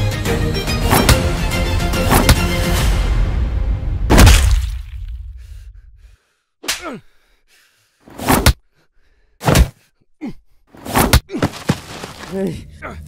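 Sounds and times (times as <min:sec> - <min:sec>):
sharp punch impacts: 0:04.1 - 0:04.9, 0:09.4 - 0:09.8.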